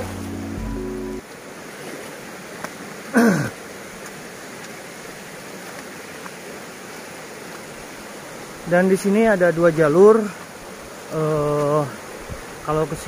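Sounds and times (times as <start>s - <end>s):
stream running over rocks: 0.0s - 13.0s.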